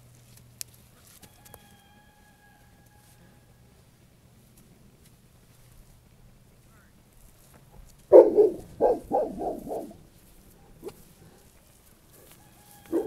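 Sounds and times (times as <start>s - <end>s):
dog barking: 8.1s - 10.0s.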